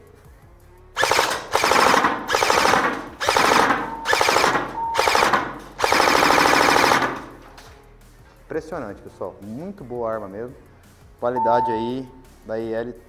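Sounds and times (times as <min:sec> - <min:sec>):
airsoft rifle firing full auto: 0:01.0 - 0:07.4.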